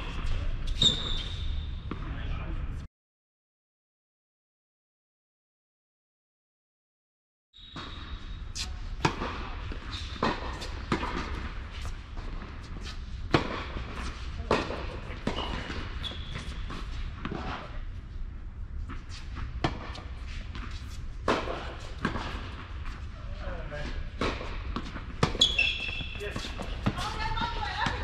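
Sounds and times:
tennis balls struck by racquets: 8.5s - 17.8s, 18.8s - 23.1s, 23.8s - 28.0s.

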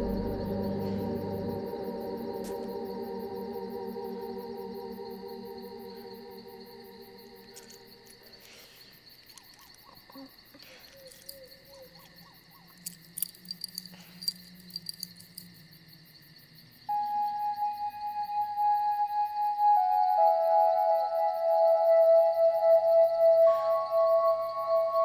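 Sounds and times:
sustained music chord: 0.0s - 7.4s
faint insects chirping: 0.0s - 25.0s.

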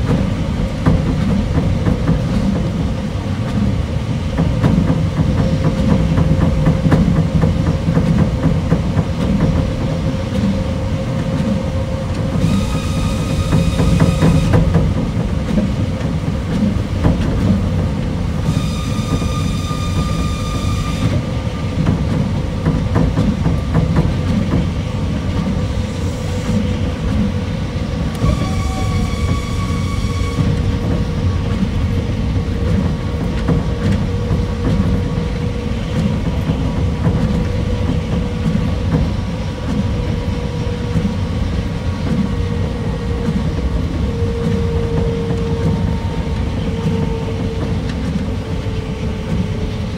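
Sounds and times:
monorail train rumbling: 0.0s - 49.9s.

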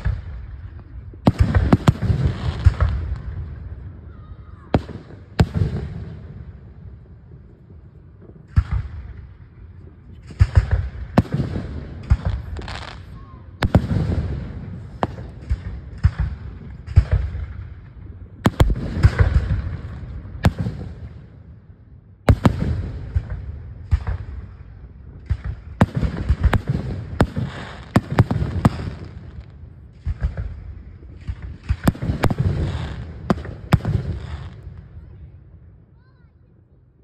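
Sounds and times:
fireworks bangs and cracks: 0.0s - 21.4s, 22.2s - 35.1s.

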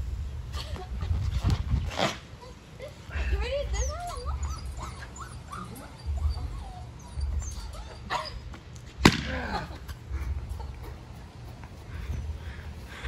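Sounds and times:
dog whining and yipping: 3.6s - 8.6s.

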